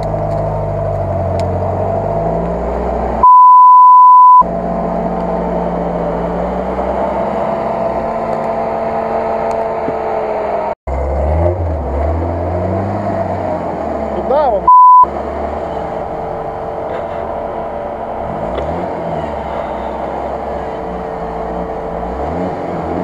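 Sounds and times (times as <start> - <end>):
jeep engine running: 0.0 - 23.0
censor bleep: 3.2 - 4.5, 14.7 - 15.1.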